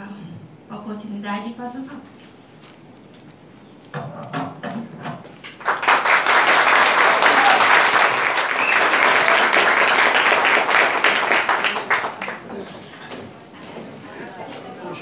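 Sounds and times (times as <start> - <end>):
crowd applauding: 5.4 - 13.0.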